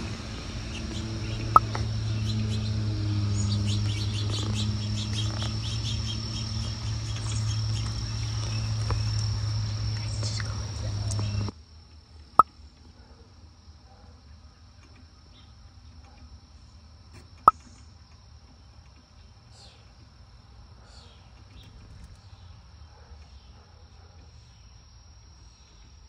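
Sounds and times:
high-pitched insect drone: 0:00.0 - 0:11.5
faint chirps: 0:00.7 - 0:11.5, 0:18.6 - 0:20.0.

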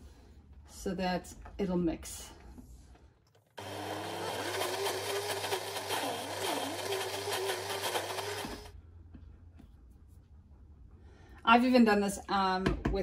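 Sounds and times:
blender motor running: 0:03.6 - 0:08.7.

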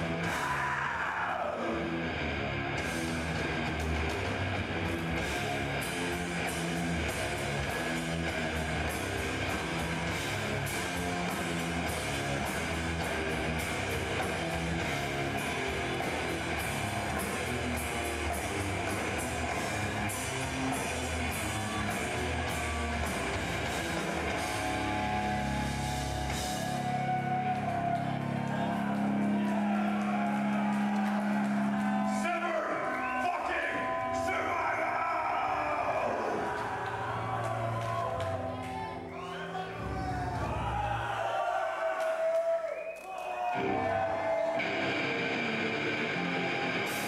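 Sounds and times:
distorted guitars and bass: 0:00.0 - 0:32.2, 0:43.6 - 0:47.0.

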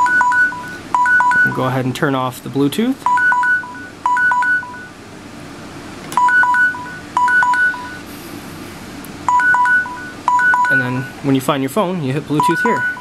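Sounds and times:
phone alarm beeping in two pitches: 0:00.0 - 0:01.6, 0:03.1 - 0:05.0, 0:06.2 - 0:08.0, 0:09.3 - 0:11.2, 0:12.4 - 0:13.0.

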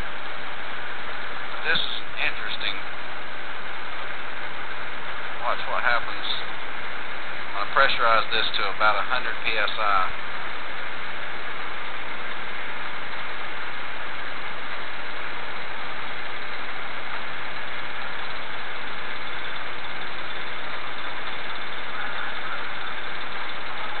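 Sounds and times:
spark ignition buzzing: 0:09.4 - 0:24.0.

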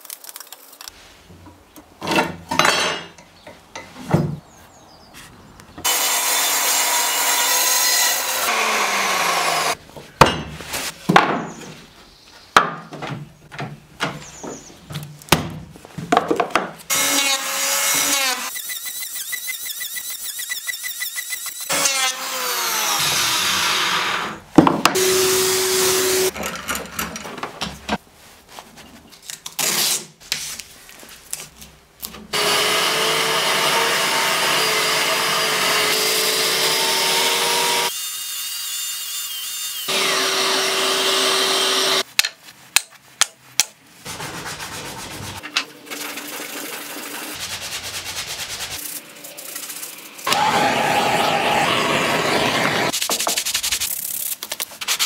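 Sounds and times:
woodworking power tool motor: 0:05.9 - 0:09.8, 0:16.9 - 0:24.4, 0:25.0 - 0:26.3, 0:32.3 - 0:38.0, 0:39.7 - 0:42.0, 0:50.2 - 0:52.9.

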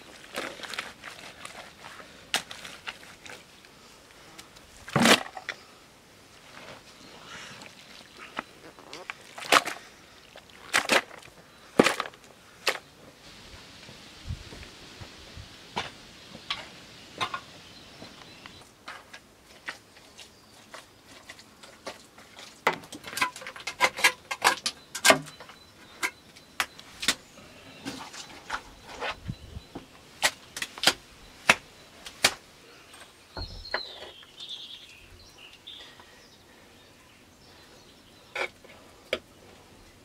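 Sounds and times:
bird chirping: 0:16.3 - 0:18.7, 0:24.7 - 0:38.6.

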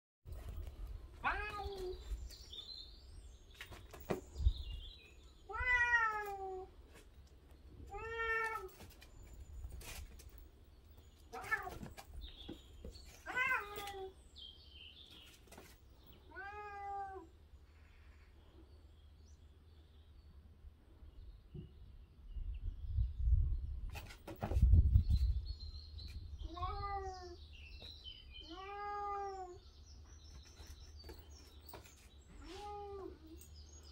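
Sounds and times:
cat meowing: 0:01.2 - 0:02.0, 0:05.5 - 0:06.7, 0:07.9 - 0:08.7, 0:11.3 - 0:11.8, 0:13.3 - 0:14.1, 0:16.3 - 0:17.3, 0:26.4 - 0:27.4, 0:28.4 - 0:29.6.

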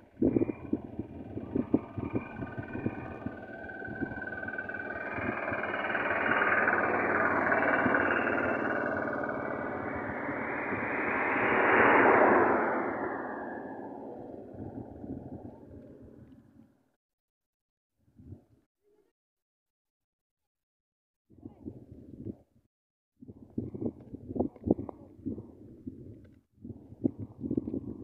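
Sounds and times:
passing vehicle road noise: 0:00.2 - 0:16.3.

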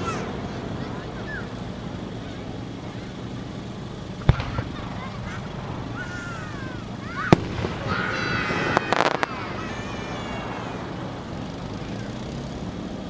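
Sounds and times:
firework whistling: 0:00.0 - 0:13.0
firework bang: 0:04.2 - 0:09.9
firework cracks: 0:04.2 - 0:11.0.

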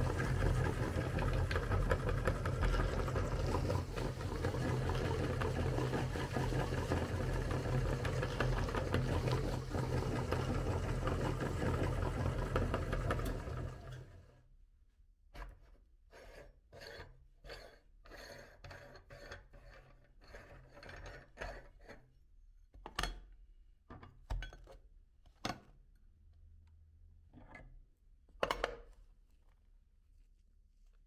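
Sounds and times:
meat grinder motor hum: 0:00.0 - 0:14.4.

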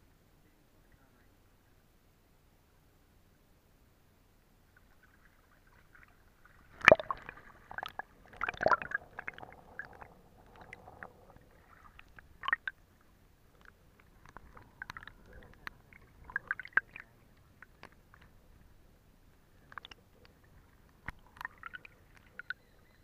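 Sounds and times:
stream water gurgling: 0:04.6 - 0:18.6, 0:19.4 - 0:23.0
water splashing: 0:04.7 - 0:12.8, 0:13.5 - 0:18.4, 0:19.7 - 0:22.6
underwater bubbling clicks: 0:06.7 - 0:12.8, 0:13.5 - 0:18.4, 0:19.6 - 0:22.6.

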